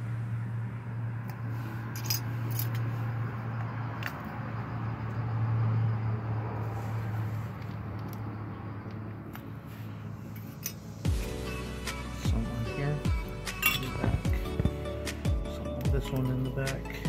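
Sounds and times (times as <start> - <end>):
metal clips clicking and clinking: 13.6 - 14.0.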